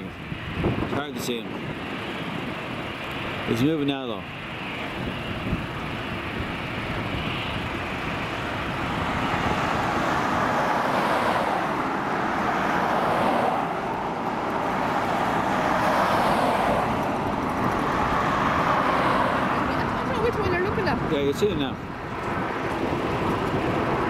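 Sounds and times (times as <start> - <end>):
vehicles passing on road: 0.0 - 24.0.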